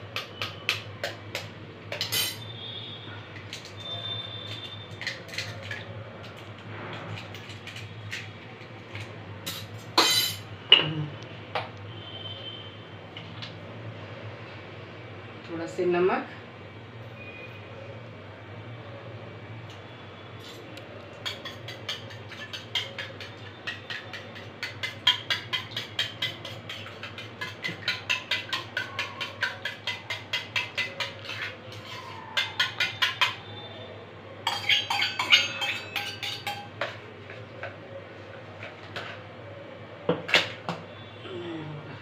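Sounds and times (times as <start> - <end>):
spoon clinking in steel bowl: 1.9 - 2.4, 9.4 - 10.4, 20.4 - 33.4, 34.4 - 37.0.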